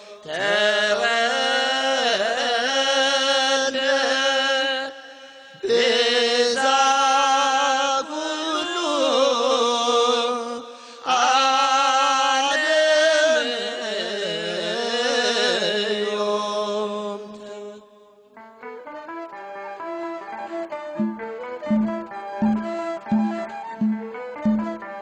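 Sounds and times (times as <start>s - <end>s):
person singing hymn: 0.0s - 17.9s.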